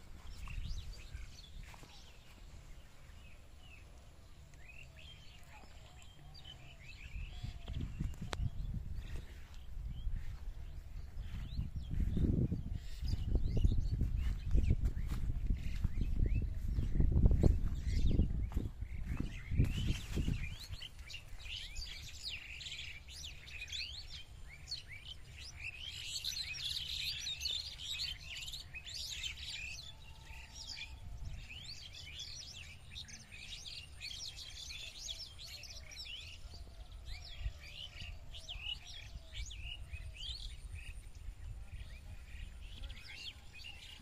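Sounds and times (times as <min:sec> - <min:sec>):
small birds chirping: 0:00.0 - 0:44.0
dull low thumps: 0:07.6 - 0:20.6.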